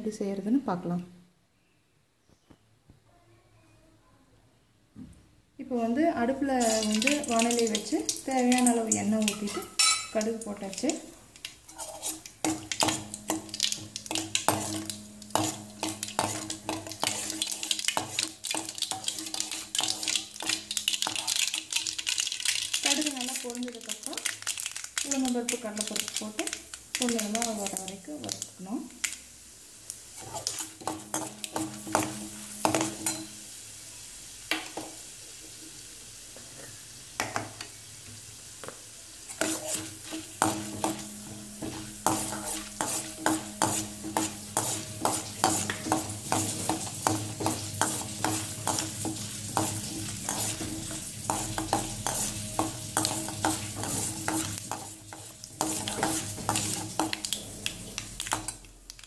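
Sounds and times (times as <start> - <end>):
seeds sizzling in hot oil: 6.0 - 59.0
steel spoon scraping a pan: 6.6 - 7.8, 8.6 - 22.3, 30.1 - 33.4, 39.3 - 57.8.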